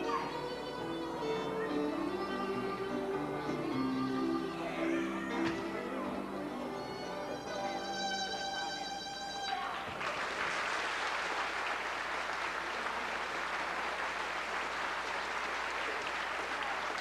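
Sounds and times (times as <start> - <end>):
fiddle tune: 0.0 - 9.8
audience applause: 9.5 - 17.0.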